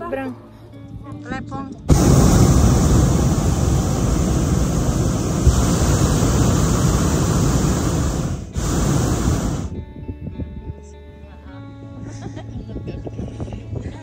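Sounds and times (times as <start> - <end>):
propane burner roaring: 1.9 - 9.7.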